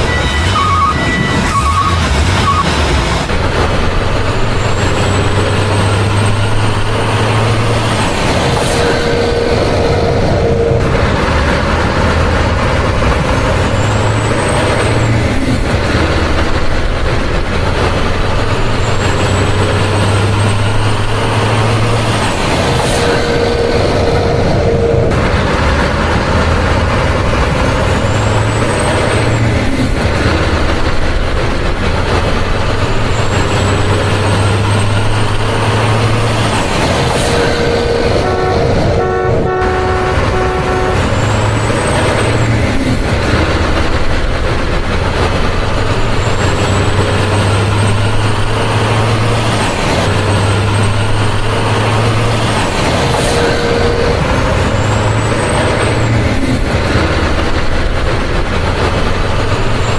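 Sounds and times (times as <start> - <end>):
heavy truck engine running: 0.0 - 59.9
short horn tone: 8.7 - 10.9, 23.0 - 25.1, 37.3 - 41.8.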